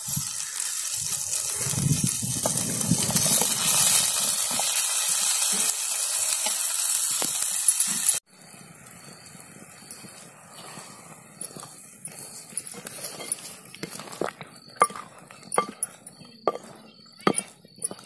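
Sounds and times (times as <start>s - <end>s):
pot boiling with loud hiss: 0.0s - 18.0s
wooden ladle knocking pot: 13.1s - 18.0s.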